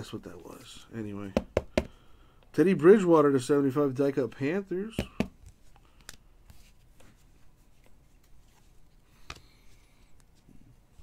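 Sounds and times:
cards sliding and tapping: 0:05.0 - 0:11.0.

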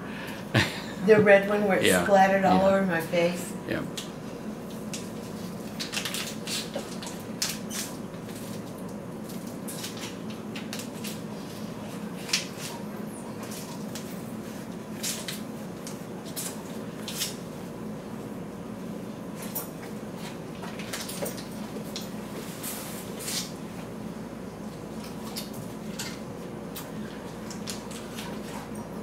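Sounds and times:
steady room hum: 0:00.0 - 0:29.0.

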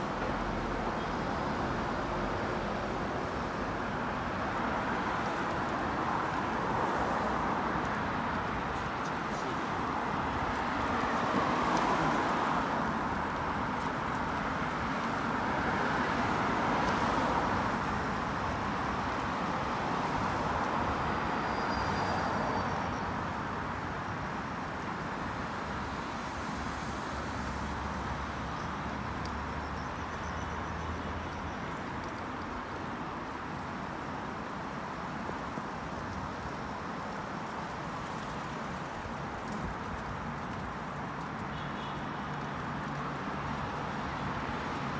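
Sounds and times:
cars passing: 0:00.0 - 0:44.9
traffic noise: 0:00.0 - 0:44.9.

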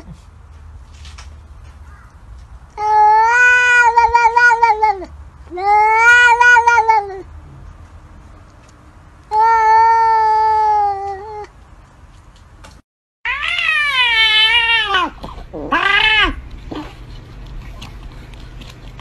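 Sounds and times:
cats meowing: 0:02.8 - 0:07.3, 0:09.3 - 0:11.5, 0:13.3 - 0:18.9.

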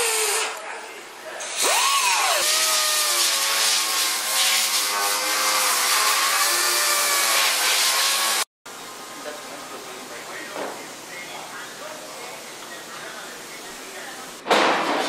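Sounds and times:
workshop background: 0:00.0 - 0:15.0
air sander on steel: 0:01.4 - 0:08.5.

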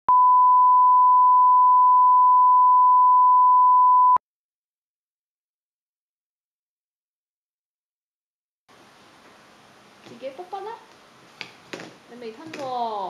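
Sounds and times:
steady test tone beep: 0:00.0 - 0:04.2.

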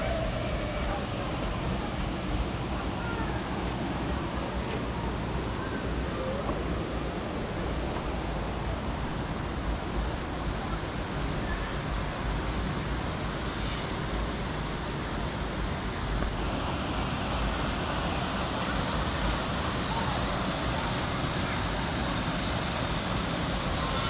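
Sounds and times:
stream rushing over rocks: 0:06.6 - 0:24.0.

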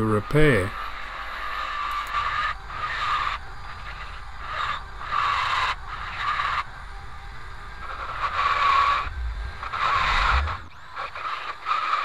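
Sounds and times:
steady drill whine: 0:00.0 - 0:12.0.

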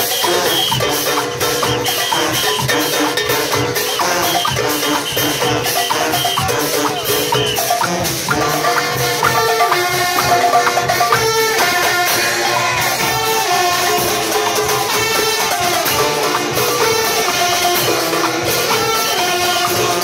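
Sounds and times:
brass band playing: 0:00.0 - 0:20.0
drums and rattling percussion: 0:00.0 - 0:20.0.

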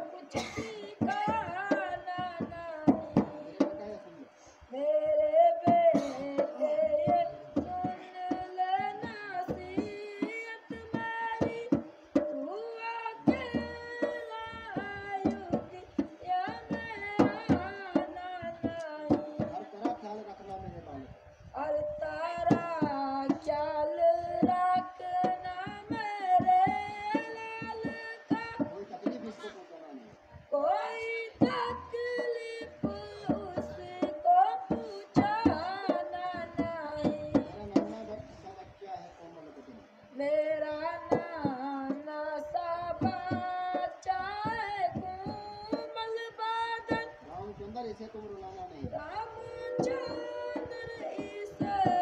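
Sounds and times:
hand drum strokes: 0:05.1 - 0:29.5, 0:48.4 - 0:52.0
person singing slow melody: 0:49.0 - 0:52.0.

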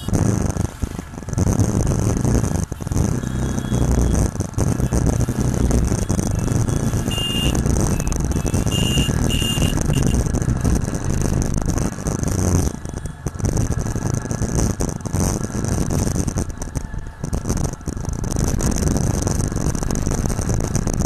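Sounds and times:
motorcycle engine rumble: 0:00.0 - 0:21.0
wind and road noise: 0:00.0 - 0:21.0
short high-pitched beeps: 0:02.8 - 0:04.2, 0:04.8 - 0:10.2.

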